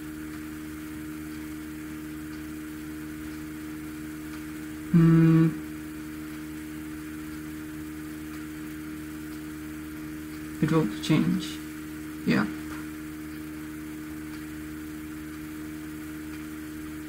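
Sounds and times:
electrical hum: 0.0s - 17.0s
man humming: 4.9s - 5.7s.

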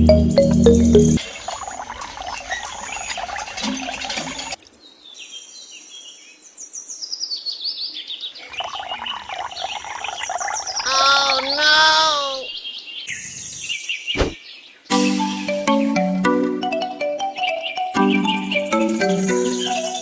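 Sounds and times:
birds chirping: 8.1s - 14.8s.

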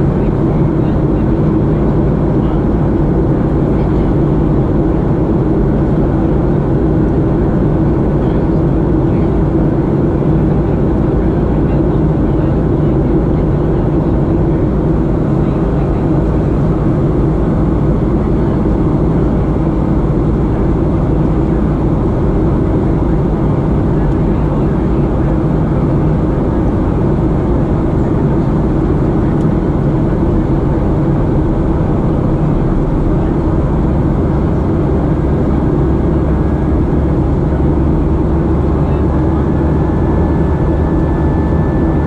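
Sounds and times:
jet engines running: 0.0s - 42.0s.

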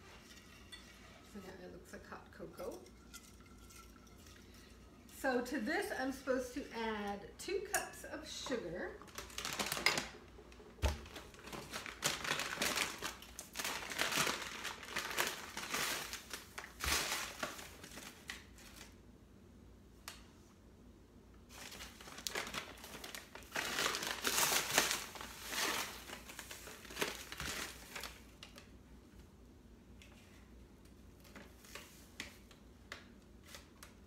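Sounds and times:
paper bag crinkling: 9.0s - 18.9s, 21.5s - 28.3s.

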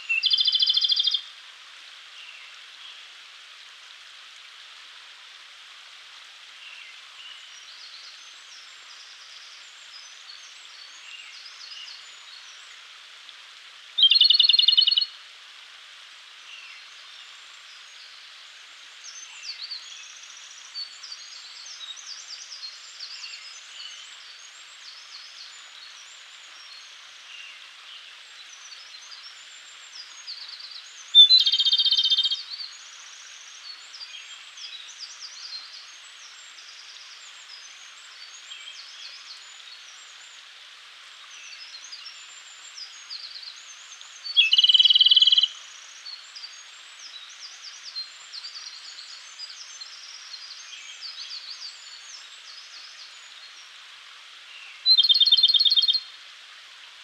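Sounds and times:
faint bird chirps: 0.0s - 1.2s, 14.0s - 15.1s, 30.0s - 32.8s, 41.6s - 53.6s, 54.7s - 56.1s
robin singing trills: 0.0s - 1.2s, 14.0s - 15.1s, 31.1s - 32.7s, 44.1s - 47.3s, 54.8s - 56.1s
steady hiss: 0.0s - 57.0s.

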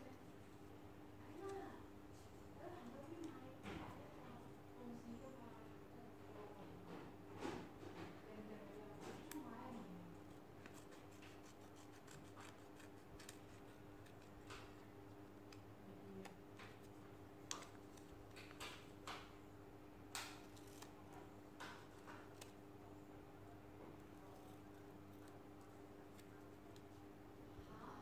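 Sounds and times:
scissors snipping paper: 10.2s - 14.8s, 20.2s - 22.6s.

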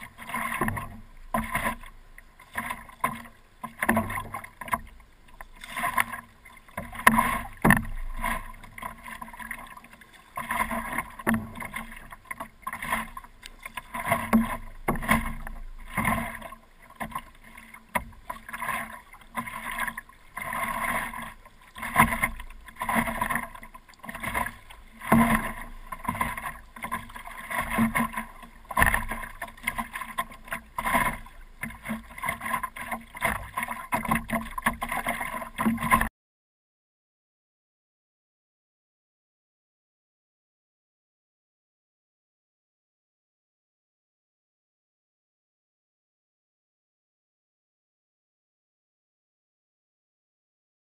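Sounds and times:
paddle strokes splashing in water: 0.0s - 36.1s.

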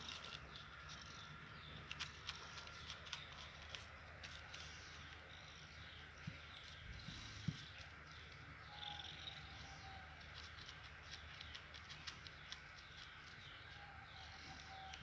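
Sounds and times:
faint high chirps: 13.6s - 15.0s.

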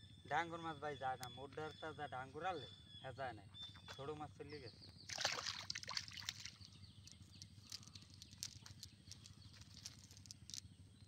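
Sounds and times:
net weights ticking and rustling: 6.2s - 10.6s.

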